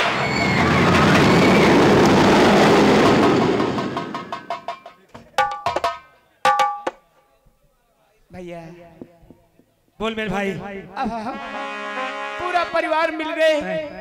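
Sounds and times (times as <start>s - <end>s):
fast drum roll: 0.0s - 6.0s.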